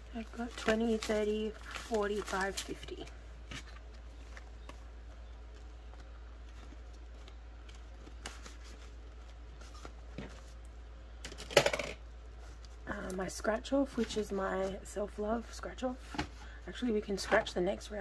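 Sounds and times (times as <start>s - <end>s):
banknotes and plastic rustling: 0.0s - 12.8s.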